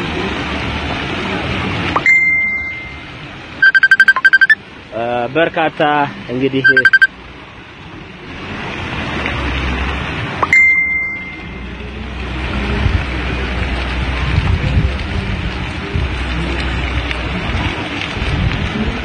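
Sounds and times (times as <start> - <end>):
high bell-like ding: 2.0 - 4.5, 10.4 - 11.7.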